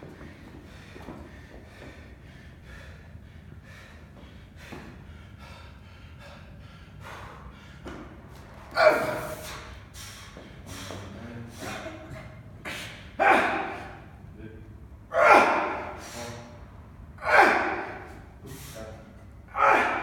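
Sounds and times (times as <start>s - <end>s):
man breathing hard: 0.0s - 14.3s, 15.5s - 20.0s
man grunting loudly: 8.7s - 9.5s, 13.2s - 14.1s, 15.1s - 16.1s, 17.2s - 18.1s, 19.5s - 20.0s.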